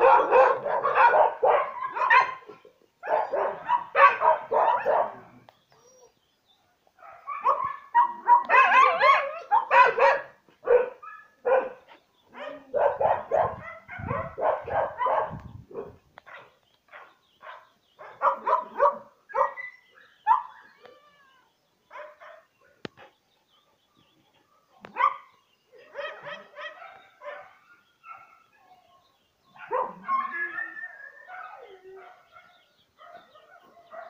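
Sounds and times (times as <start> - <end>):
dog barking: 0.0 - 5.2, 7.0 - 11.8, 12.4 - 19.6, 21.9 - 22.5, 24.6 - 25.3, 25.9 - 28.4, 29.6 - 34.0.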